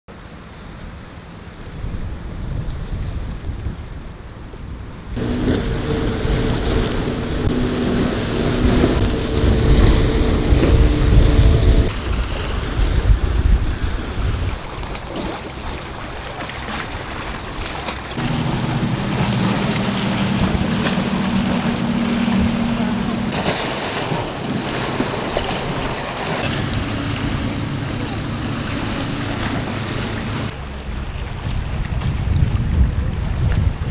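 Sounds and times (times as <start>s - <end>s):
choppy sea water: 0.1s - 33.9s
wind buffeting microphone: 1.6s - 33.9s
motorboat engine drone: 5.2s - 14.2s, 15.2s - 31.9s.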